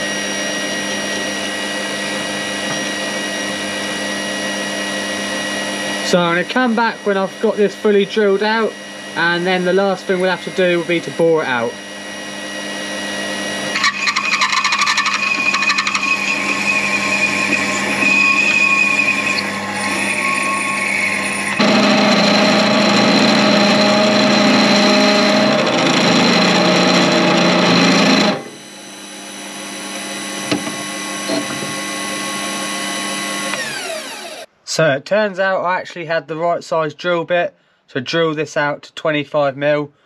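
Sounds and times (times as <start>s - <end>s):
drill cutting metal: 0.0s - 34.5s
lathe motor whine: 0.0s - 34.5s.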